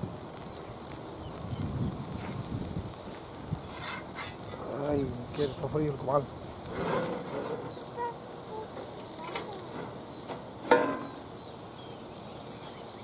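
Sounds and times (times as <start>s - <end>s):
steady low hiss: 0.0s - 13.0s
metal clanking on cast iron: 3.7s - 5.6s, 6.7s - 7.8s, 8.7s - 11.3s
light clicks on grill: 8.7s - 11.5s.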